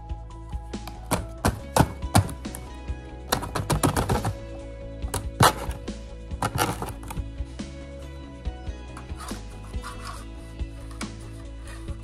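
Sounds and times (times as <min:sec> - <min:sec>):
background music: 0:00.0 - 0:12.0
plastic bin knocking on cardboard: 0:00.8 - 0:02.6, 0:03.3 - 0:04.4.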